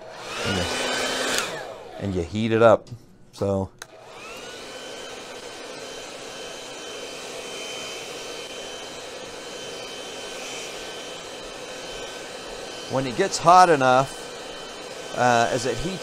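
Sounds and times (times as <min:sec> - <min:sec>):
hair dryer running: 0:00.0 - 0:02.7, 0:03.8 - 0:16.0.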